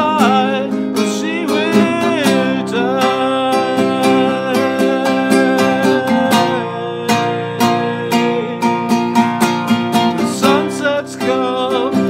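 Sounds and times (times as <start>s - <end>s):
classical guitar strumming: 0.0s - 12.0s
man singing long note: 1.2s - 8.7s.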